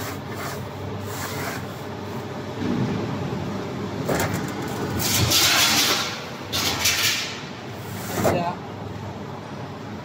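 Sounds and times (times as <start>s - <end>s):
low machine hum: 0.0s - 10.0s
steel plate scraping over metal: 4.7s - 7.4s.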